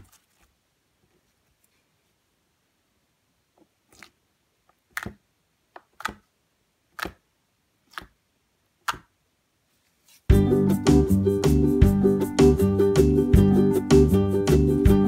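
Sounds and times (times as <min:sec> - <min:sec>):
fingers poking sticky slime: 0:04.8 - 0:06.3, 0:06.9 - 0:08.2, 0:08.8 - 0:09.2.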